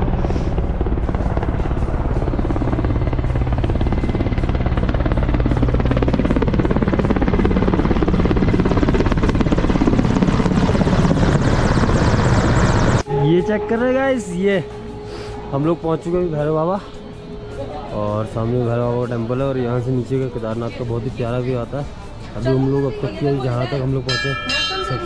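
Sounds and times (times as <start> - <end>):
helicopter rotor chopping: 0.0 - 13.0
low engine drone: 0.0 - 20.1.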